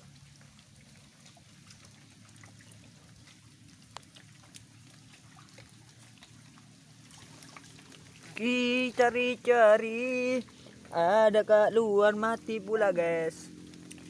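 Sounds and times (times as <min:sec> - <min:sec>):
water trickling: 0:00.0 - 0:14.0
faint clicks on mudflat: 0:03.2 - 0:05.2, 0:13.7 - 0:14.0.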